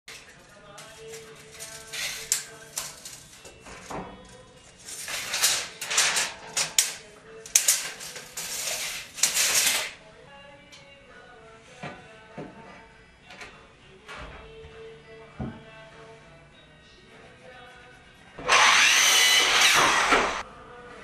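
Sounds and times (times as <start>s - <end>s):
soft background music: 0.1s - 19.4s, 20.0s - 21.0s
tape measure scraping on wood: 1.0s - 3.2s, 4.8s - 9.9s, 18.4s - 20.4s.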